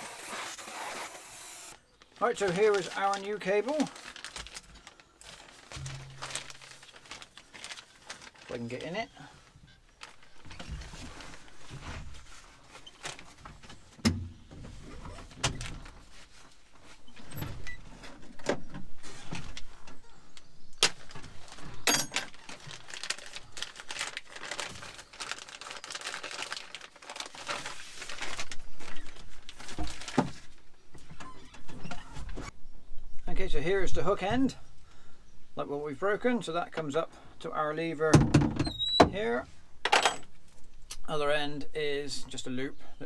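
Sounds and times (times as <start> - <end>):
packaging rustling: 0.0 - 13.4, 20.8 - 30.6.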